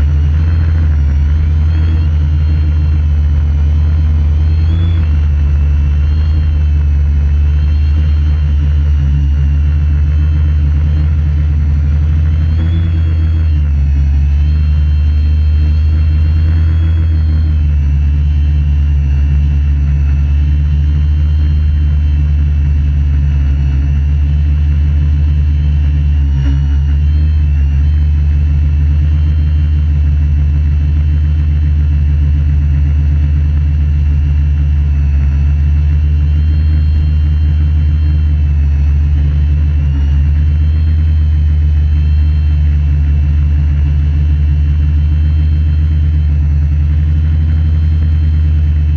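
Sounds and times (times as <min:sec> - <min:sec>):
quadcopter propellers droning: 0:00.0 - 0:18.0
high motor whine: 0:00.0 - 0:48.9.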